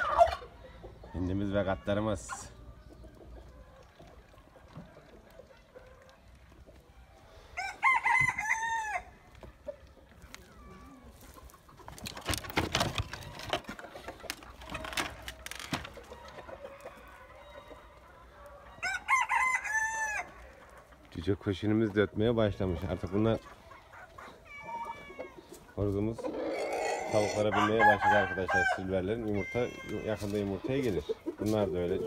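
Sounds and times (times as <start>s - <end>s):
rooster crowing: 7.6s - 9.1s, 18.8s - 20.4s, 26.8s - 30.2s.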